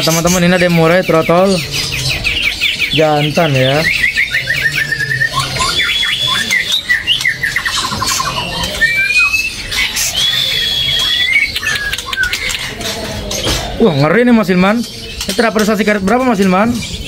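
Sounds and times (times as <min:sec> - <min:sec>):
songbird whistles and trills: 0:00.0 - 0:13.6.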